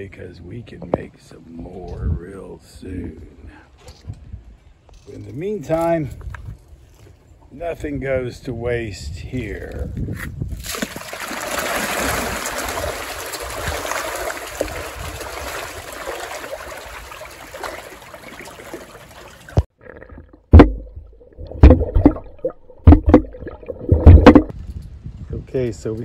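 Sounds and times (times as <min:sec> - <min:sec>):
fish splashing at water surface: 0:10.6 - 0:19.7
low underwater thumps: 0:19.6 - 0:24.6.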